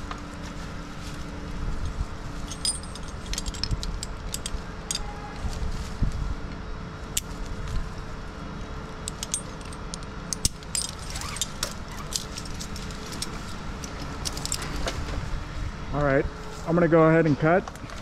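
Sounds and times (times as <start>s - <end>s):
metal hardware clinking: 2.4s - 5.1s, 9.0s - 14.7s.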